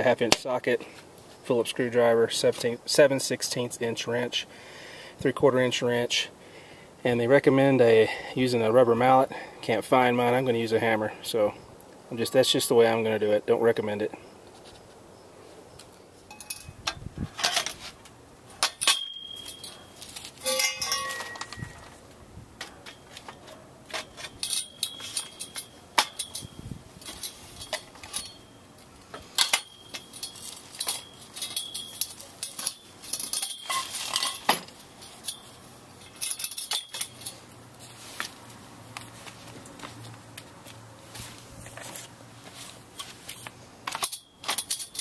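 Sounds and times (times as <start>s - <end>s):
steel tubes knocking together: 20.4s - 21.9s.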